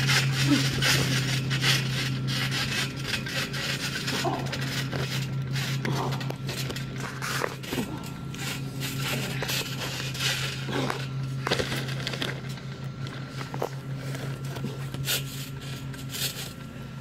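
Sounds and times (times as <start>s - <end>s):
sharp knocks and crackles: 0.0s - 16.6s
steady low hum: 0.0s - 17.0s.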